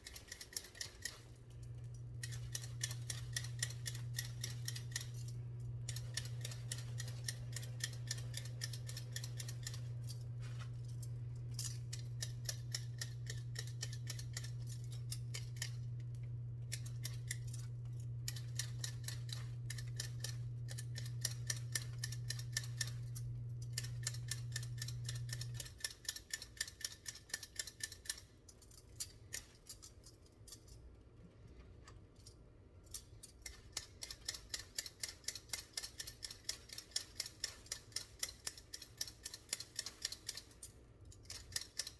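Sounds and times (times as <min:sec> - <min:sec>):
potato peeler scraping potatoes: 0:00.0 - 0:01.5, 0:02.1 - 0:16.0
low hum: 0:01.3 - 0:25.6.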